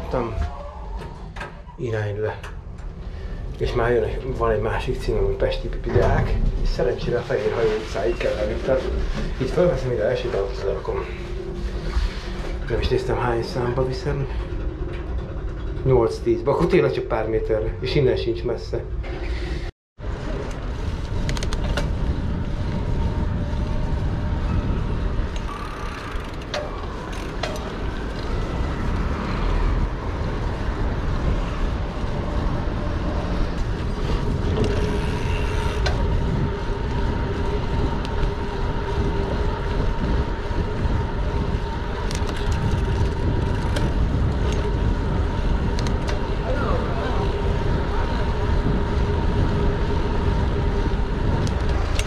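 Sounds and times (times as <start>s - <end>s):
street traffic: 20.0s - 52.0s
wind on microphone: 20.0s - 52.0s.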